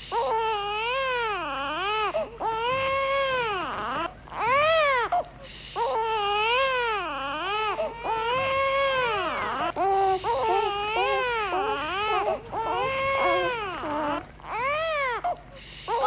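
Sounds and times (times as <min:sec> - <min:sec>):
baby crying loudly: 0:05.8 - 0:16.0.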